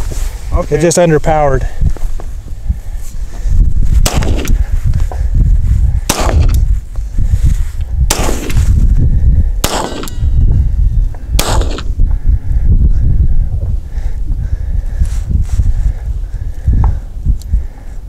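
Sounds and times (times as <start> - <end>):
wind rumble on microphone: 0.0 - 18.0
pistol shots: 4.0 - 4.6, 6.1 - 6.6, 8.1 - 8.6, 9.6 - 10.3, 11.4 - 11.9.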